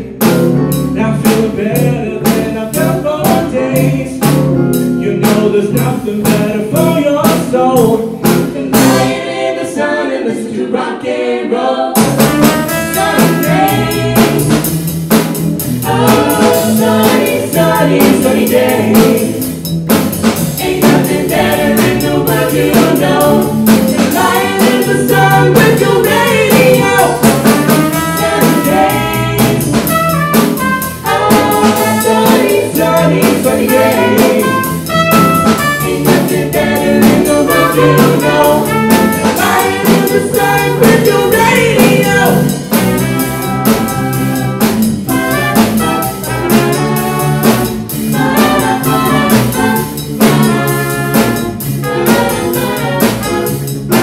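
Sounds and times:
drum kit: 0.0 - 10.1, 11.9 - 54.0
trumpets and trombone: 12.0 - 14.5, 20.8 - 40.7, 42.7 - 54.0.

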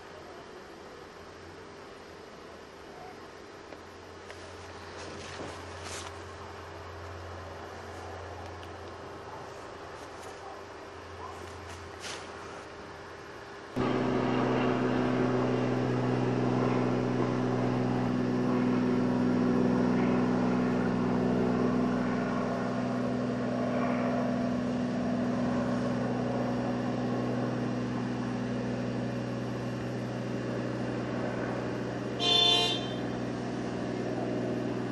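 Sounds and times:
engine running steadily: 13.6 - 34.9
short horn toot: 32.2 - 33.2.

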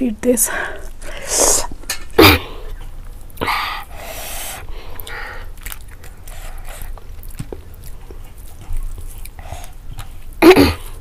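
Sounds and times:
wet chewing and mouth clicks: 2.6 - 11.0.

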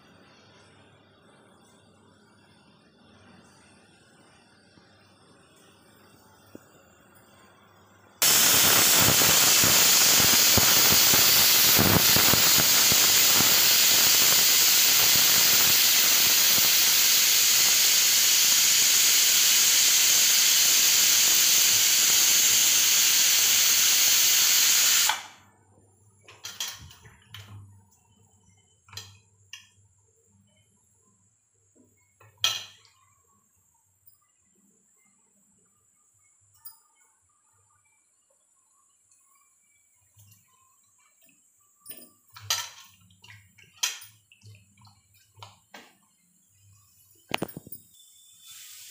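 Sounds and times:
pressure cooker hissing whistle: 8.2 - 25.4, 47.2 - 48.9.

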